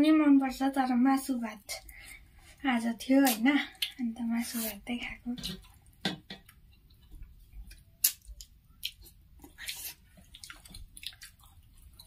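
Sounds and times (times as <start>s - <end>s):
chewing: 6.7s - 12.0s
wet mouth clicks: 7.7s - 11.4s.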